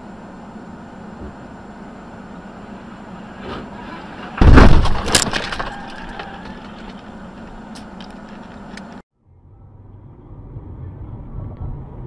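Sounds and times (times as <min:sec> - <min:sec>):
steady road hum: 0:00.0 - 0:12.0
heavy crash impact: 0:04.4 - 0:05.4.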